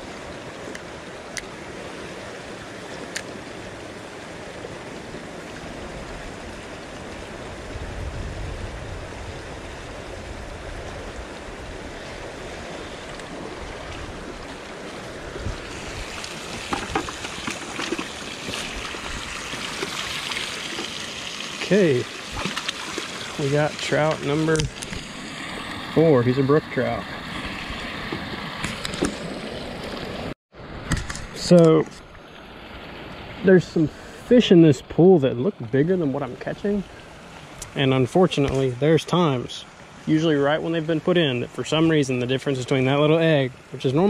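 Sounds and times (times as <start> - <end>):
creek water running over rocks: 0.0 - 44.0
water splashing into bucket: 15.6 - 26.1.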